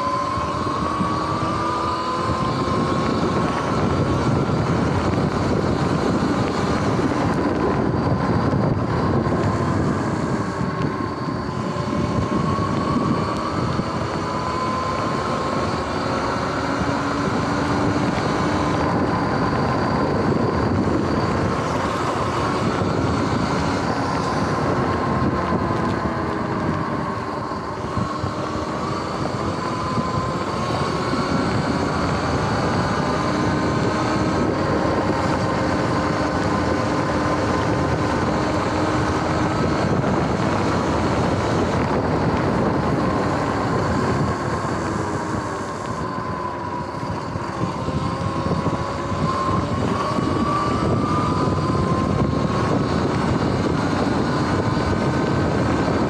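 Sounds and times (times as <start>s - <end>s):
electric bike motor whining: 0.0s - 56.0s.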